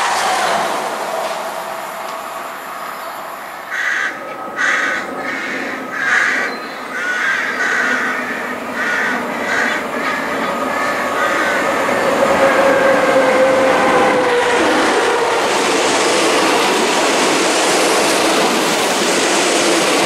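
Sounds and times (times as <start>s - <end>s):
train rumble: 0.0s - 20.0s
bird calling: 1.5s - 12.2s.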